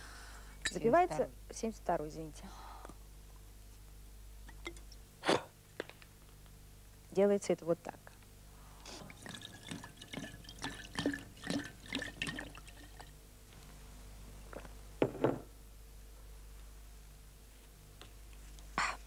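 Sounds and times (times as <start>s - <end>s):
wine glugging in bottle: 9.0s - 13.1s.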